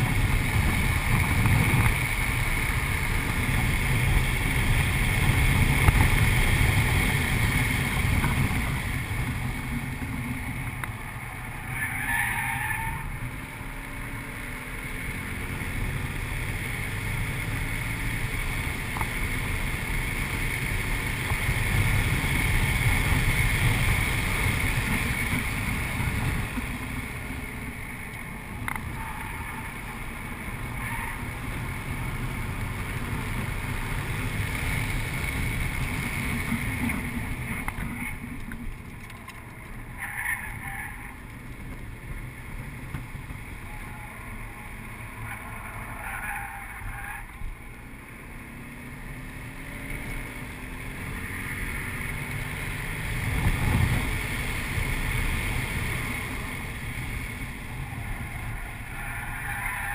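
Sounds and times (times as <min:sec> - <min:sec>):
car engine driven hard: 0:00.0 - 0:59.9
road and wind roar: 0:00.0 - 0:59.9.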